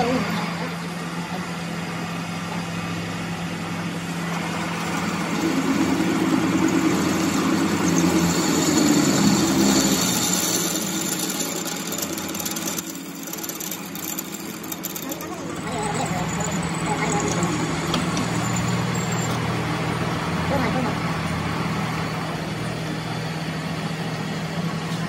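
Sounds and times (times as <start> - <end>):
lathe motor hum: 0.0 - 24.8
drill boring into metal: 4.3 - 19.7.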